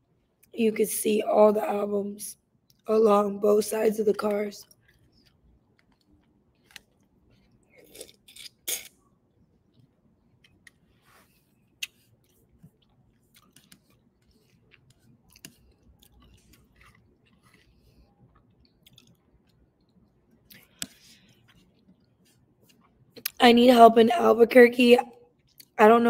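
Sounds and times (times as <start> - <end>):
chewing and mouth sounds: 4.6 - 9.0, 11.7 - 23.4, 25.3 - 25.8
person slurping noodle soup: 7.8 - 8.9.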